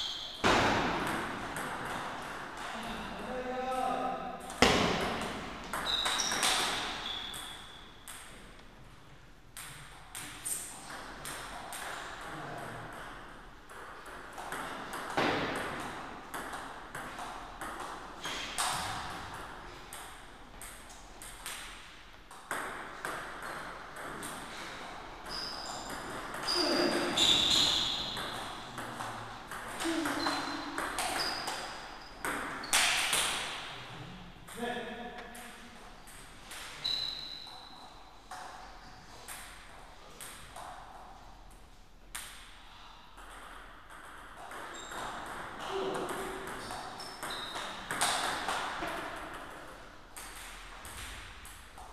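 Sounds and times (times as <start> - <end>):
table tennis ball bouncing: 0.1 - 2.7, 4.4 - 8.6, 9.6 - 24.6, 25.2 - 33.7, 34.5 - 41.0, 43.2 - 51.9.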